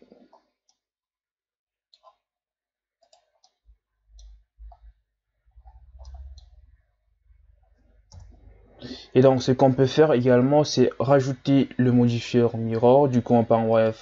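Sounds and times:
mouse and keyboard clicks: 5.6s - 6.6s.

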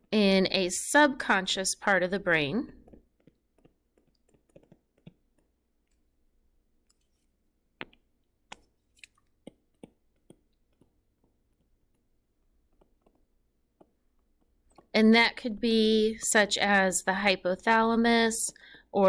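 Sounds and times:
stylus tapping tablet screen: 1.8s - 6.2s, 6.8s - 16.8s.

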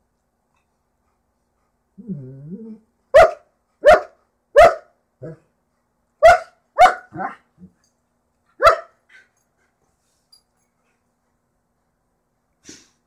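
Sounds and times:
dog barking sharply: 3.2s - 4.9s, 6.2s - 7.3s, 8.6s - 9.0s.

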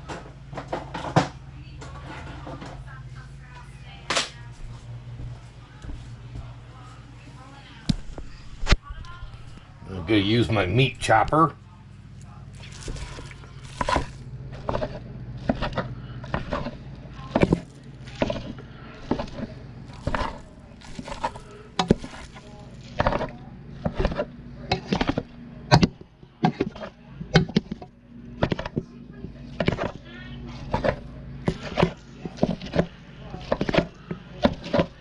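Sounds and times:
steady low hum: 0.0s - 35.0s
meat chopper knocking in pot: 23.0s - 28.8s.

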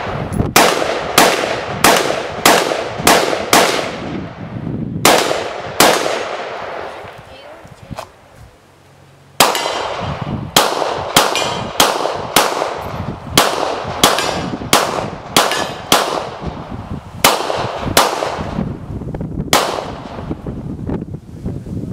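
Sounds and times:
pistol shots: 0.0s - 4.2s, 5.0s - 7.1s, 9.4s - 16.6s, 17.2s - 18.6s, 19.5s - 20.2s.

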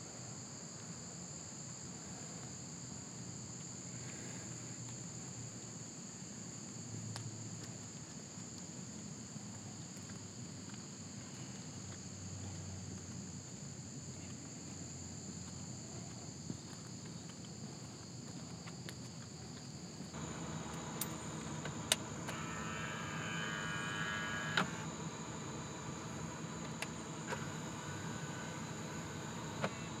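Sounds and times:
insect chorus chirring: 0.3s - 30.0s
car approaching: 20.0s - 30.0s.

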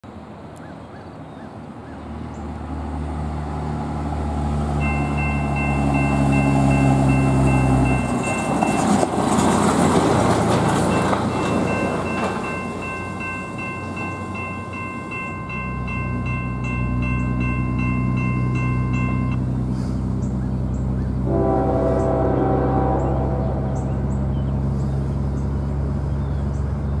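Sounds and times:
truck engine passing: 2.0s - 27.0s
railroad crossing bell ringing: 4.6s - 19.6s.

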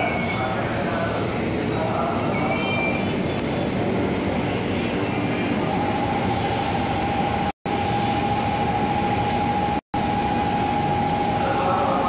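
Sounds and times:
train rumbling rail noise: 0.0s - 9.7s
steady high hum: 0.0s - 12.0s.

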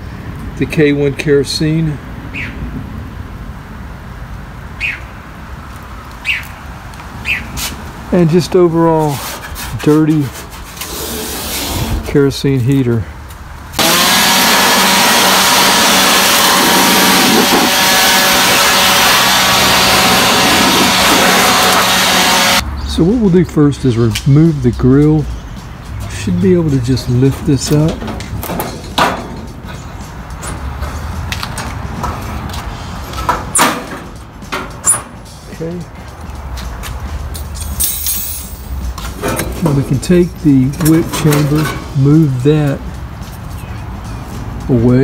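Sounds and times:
air blower rushing: 13.8s - 22.6s
loud metal clanks: 27.2s - 29.8s, 33.1s - 35.3s.

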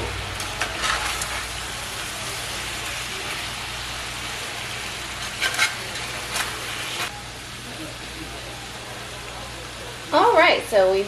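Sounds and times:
potatoes sizzling in skillet: 0.0s - 11.0s
metal spatula scraping pan: 0.5s - 1.5s, 5.2s - 6.6s.

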